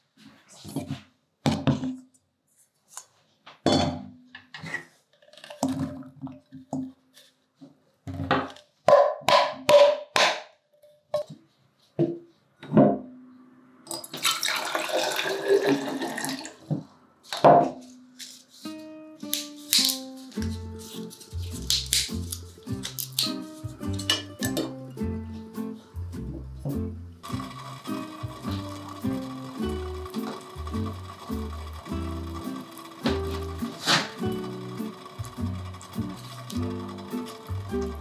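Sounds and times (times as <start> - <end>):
water pouring into a bottle: 14.0 - 16.7
utensils clinking on a steel bowl: 22.8 - 24.8.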